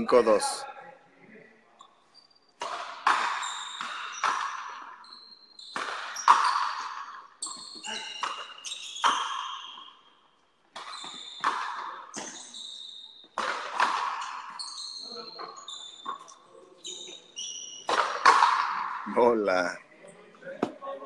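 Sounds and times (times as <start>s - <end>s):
rubber ball hitting rackets and wall: 2.6s - 4.9s, 5.7s - 9.5s, 10.7s - 12.4s, 13.4s - 14.6s, 17.8s - 19.0s.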